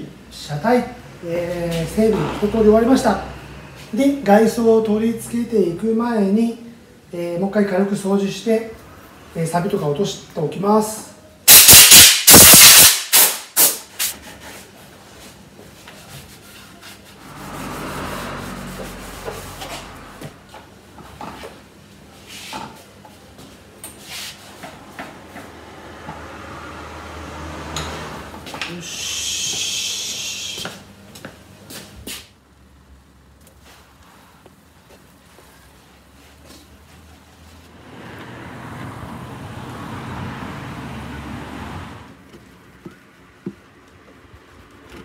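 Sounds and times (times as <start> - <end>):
compressed air blow gun blasting: 11.5 - 14.1
cleaning noises: 12.3 - 20.4, 24.0 - 24.7, 28.8 - 30.8
high hissing: 28.7 - 30.8.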